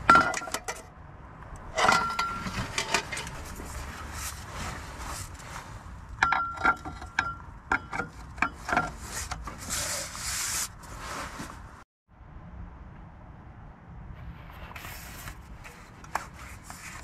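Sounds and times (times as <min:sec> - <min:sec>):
metal cover scraping: 0:01.7 - 0:05.4, 0:06.2 - 0:11.5.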